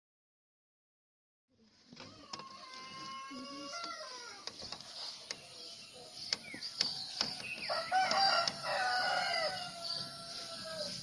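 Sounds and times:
birds chirping: 1.7s - 11.0s
rooster crowing: 2.1s - 4.4s, 7.4s - 11.0s
sharp ticks: 6.2s - 8.6s.

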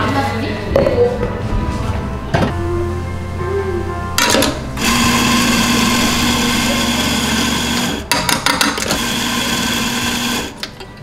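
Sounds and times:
coffee grinder whirring: 4.2s - 10.6s.

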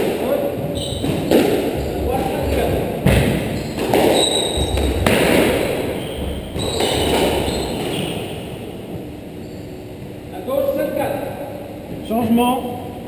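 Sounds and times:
squash ball hits: 0.0s - 8.5s
shoes squeaking on wooden floor: 0.6s - 5.2s, 5.9s - 8.6s.

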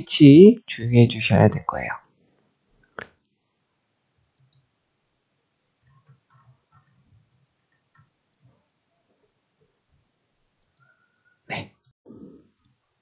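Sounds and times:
computer mouse clicks: 4.4s - 4.7s, 5.8s - 8.1s, 10.6s - 11.0s.

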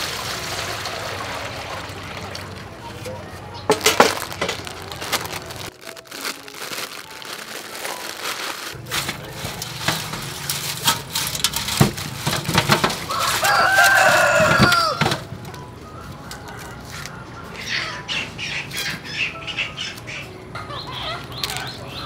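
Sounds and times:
hands stirring noodles in water: 3.7s - 15.0s
plastic packet crinkling: 3.7s - 15.0s, 21.4s - 21.7s.

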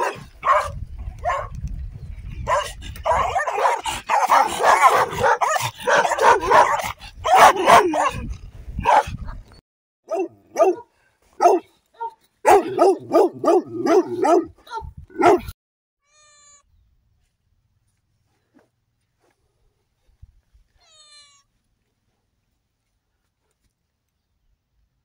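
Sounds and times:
dogs barking and snarling: 0.0s - 1.5s, 2.4s - 9.2s, 10.1s - 15.6s.

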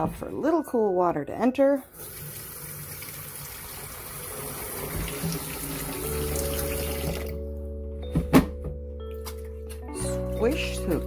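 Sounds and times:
water running into a kettle: 1.9s - 7.4s.

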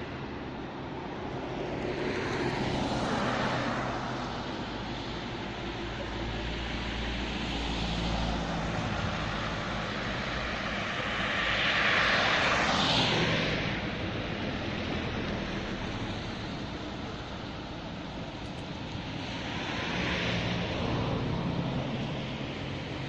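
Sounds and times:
street traffic: 0.0s - 23.0s
car passing close by: 7.5s - 13.8s.

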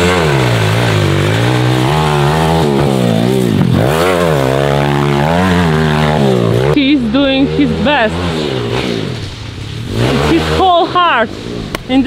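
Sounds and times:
motorbike engine revving: 0.0s - 12.0s.

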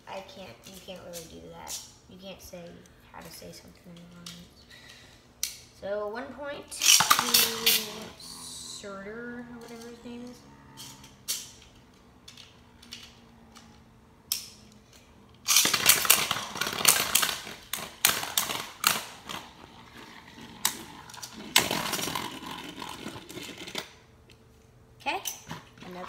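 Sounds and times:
spinning tops clashing in a bowl: 6.7s - 8.1s, 15.4s - 19.2s.

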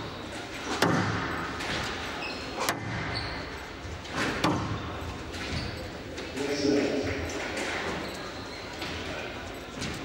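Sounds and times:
squash rackets striking ball: 0.7s - 1.8s.

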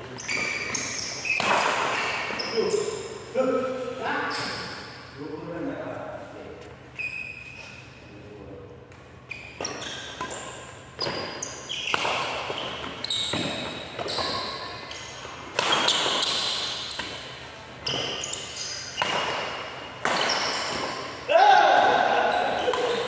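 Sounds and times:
rackets striking shuttlecock: 0.2s - 2.8s, 8.9s - 21.2s, 21.8s - 23.0s.

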